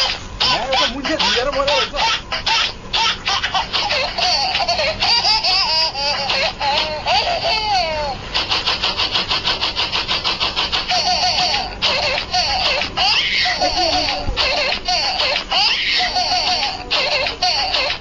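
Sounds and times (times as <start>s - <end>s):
high-pitched voices squealing: 0.0s - 10.0s, 10.8s - 18.0s
rapid even pulsing: 0.0s - 18.0s.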